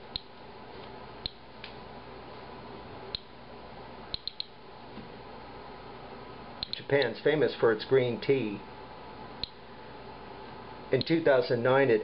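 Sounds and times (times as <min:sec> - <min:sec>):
geiger counter clicking: 0:00.1 - 0:00.3, 0:03.1 - 0:03.3, 0:04.1 - 0:04.6, 0:06.6 - 0:07.1.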